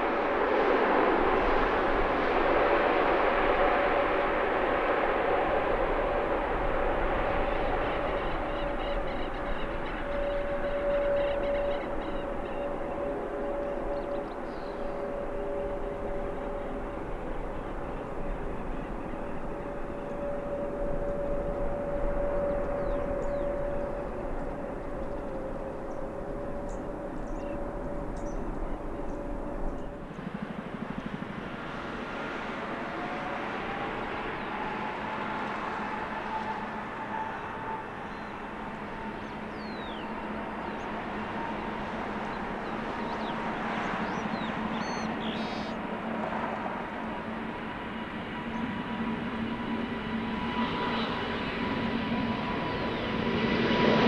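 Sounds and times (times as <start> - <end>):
distant jet engines humming: 0.0 - 54.0
engine whine: 0.0 - 54.0.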